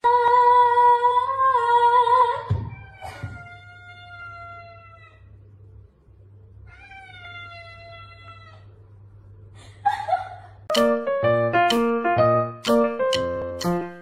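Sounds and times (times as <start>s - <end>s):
cat meowing: 2.7s - 5.3s, 6.7s - 8.7s.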